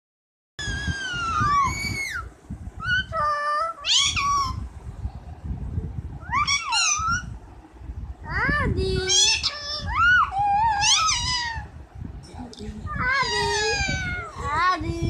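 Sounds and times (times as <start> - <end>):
parakeet calling: 0.6 - 3.2, 3.8 - 4.7, 6.2 - 7.4, 8.9 - 11.7, 12.9 - 14.6.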